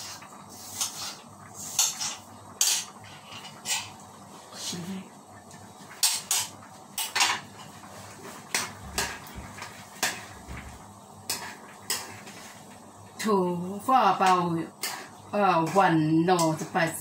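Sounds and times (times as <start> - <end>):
metal utensils clinking and scraping: 0.8 - 4.0, 14.2 - 16.6.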